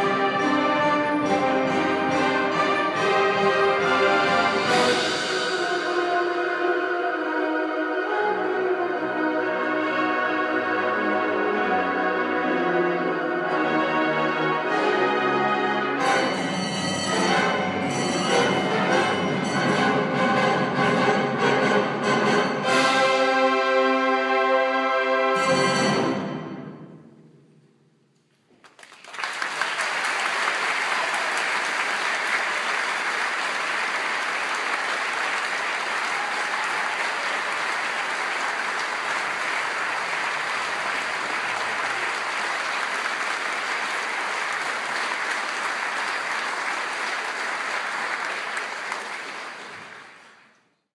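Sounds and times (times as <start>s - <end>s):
audience applauding: 28.6s - 50.6s.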